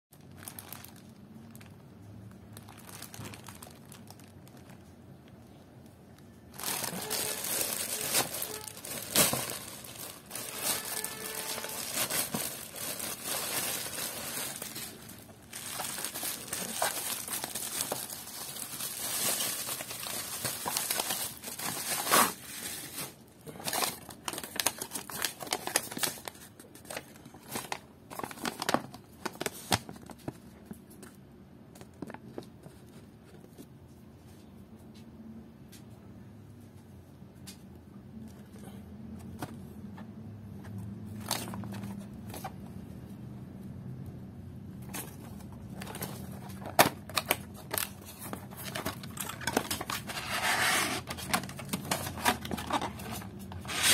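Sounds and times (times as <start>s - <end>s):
plastic pouch crinkling: 0.2s - 5.2s, 6.4s - 30.4s, 44.8s - 50.3s
paper slips crackling: 6.6s - 22.3s.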